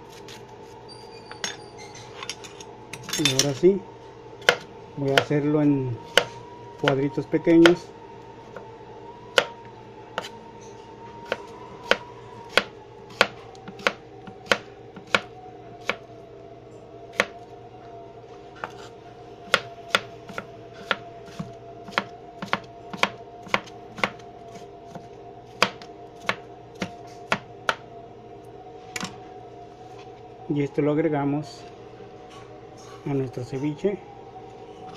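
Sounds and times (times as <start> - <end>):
steady hum with faint whine: 0.0 - 34.9
knife chopping on plastic board: 11.3 - 15.3, 19.5 - 24.2.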